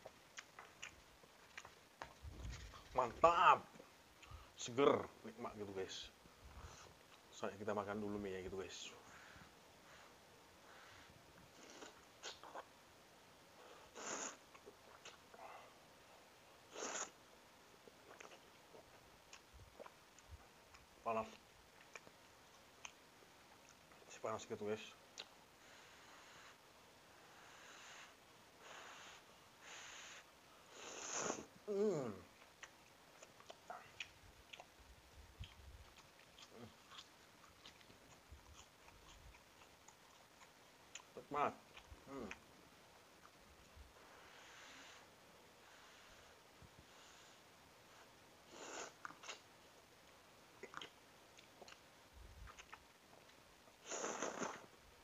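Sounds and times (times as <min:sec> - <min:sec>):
sucking and lip-smacking: 0:00.0 - 0:03.0, 0:11.4 - 0:12.8, 0:13.9 - 0:15.4, 0:17.8 - 0:20.9, 0:25.1 - 0:25.4, 0:30.9 - 0:42.5, 0:48.0 - 0:49.5, 0:50.6 - 0:54.8
person slurping noodles: 0:14.0 - 0:14.4, 0:16.7 - 0:17.1, 0:30.8 - 0:31.5, 0:53.8 - 0:54.7
chewing and biting food: 0:32.4 - 0:42.4, 0:50.6 - 0:53.4.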